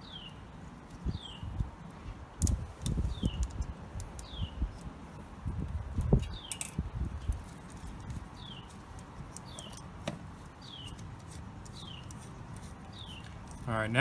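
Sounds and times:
bird chirping: 0.0 - 0.4, 1.0 - 1.6, 3.0 - 3.6, 4.2 - 4.8, 6.1 - 13.8.

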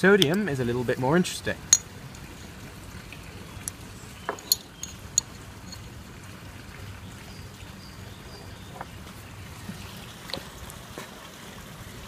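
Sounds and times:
metal spatula clinking on glass: 4.3 - 5.9.

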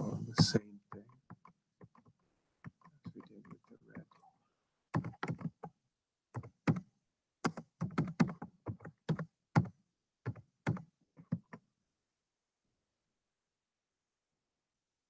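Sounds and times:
keyboard typing clicks: 5.0 - 5.7, 6.4 - 9.7, 10.3 - 11.6.

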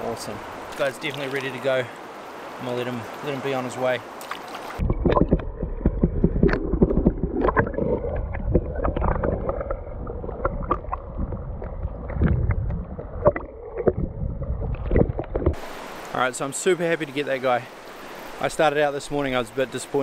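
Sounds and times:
small sharp underwater clicks: 4.2 - 9.8
underwater river rushing rumble: 4.7 - 16.0.

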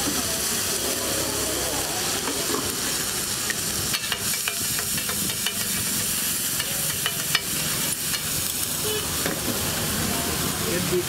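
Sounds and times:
vegetables sizzling in oil: 0.0 - 11.0
metal utensil scraping griddle: 3.9 - 8.6.

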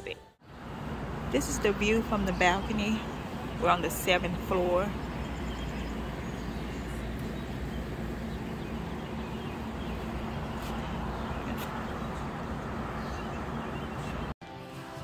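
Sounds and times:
distant city traffic rumble: 0.0 - 14.4.

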